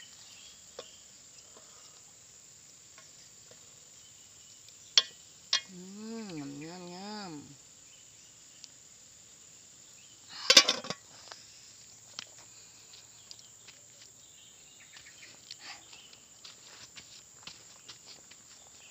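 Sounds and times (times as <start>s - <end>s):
high insect drone: 0.0s - 18.9s
metal pot lid clattering: 10.5s - 11.0s.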